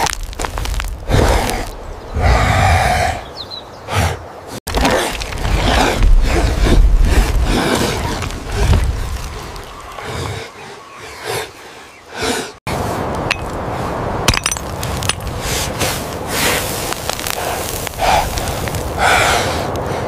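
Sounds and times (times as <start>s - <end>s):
stone striking and scraping stone: 13.2s - 13.6s, 14.3s - 15.3s.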